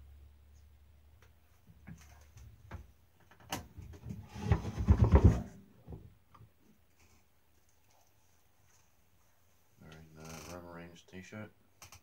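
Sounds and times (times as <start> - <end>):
rubbing and rustling: 3.8 - 6.1.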